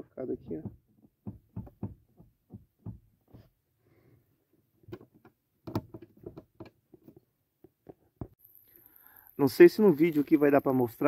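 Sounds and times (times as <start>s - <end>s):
car seat clicking and knocking: 0.5s - 3.4s.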